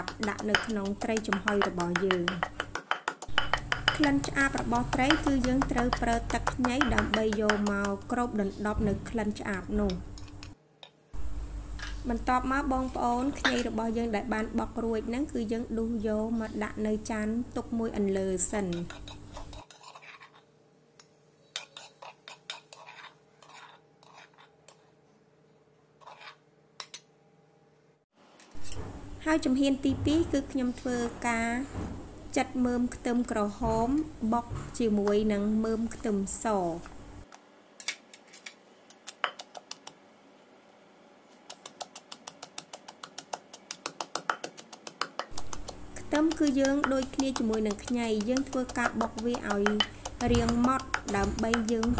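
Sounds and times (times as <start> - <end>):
metal spoon scraping a mortar: 0.0 - 8.1, 18.5 - 20.5, 21.4 - 24.8, 26.0 - 26.4, 45.3 - 51.9.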